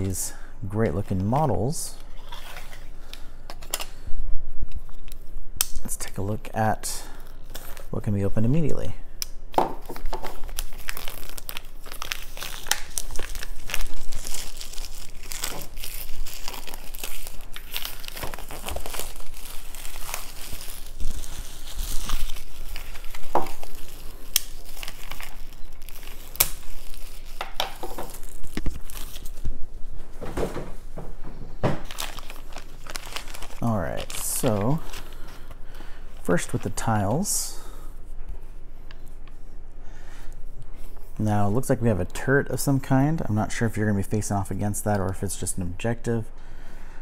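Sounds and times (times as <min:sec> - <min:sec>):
plastic packaging crinkling and tearing: 0:07.0 - 0:08.7, 0:09.8 - 0:29.6, 0:31.8 - 0:37.3.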